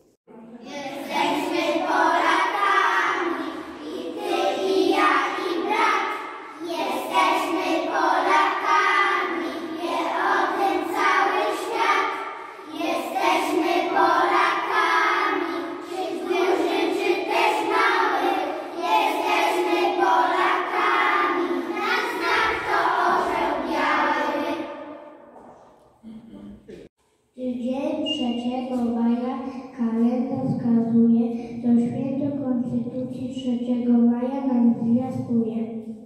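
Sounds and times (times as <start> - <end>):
children singing in unison: 0.6 - 25.6.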